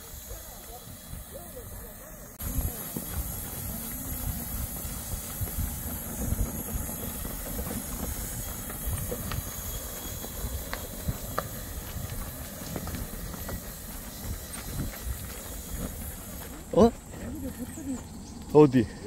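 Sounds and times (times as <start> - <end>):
footsteps running on path: 2.4 - 18.4.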